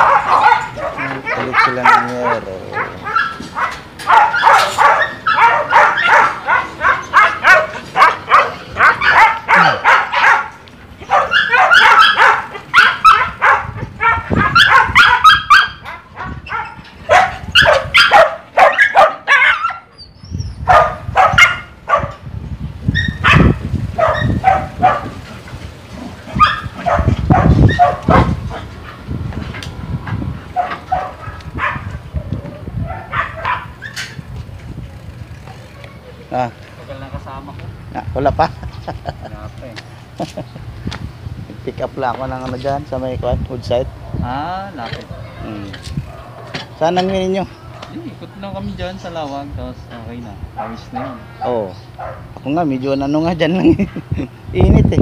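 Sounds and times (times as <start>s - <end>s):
dog barking: 0.0s - 19.9s, 20.6s - 22.2s, 23.0s - 25.2s, 26.3s - 28.4s, 30.6s - 34.0s, 50.6s - 52.3s.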